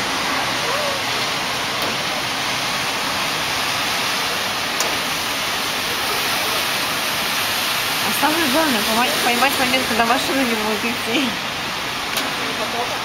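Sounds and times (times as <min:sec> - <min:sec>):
floodwater rushing across street: 0:00.0 - 0:13.0.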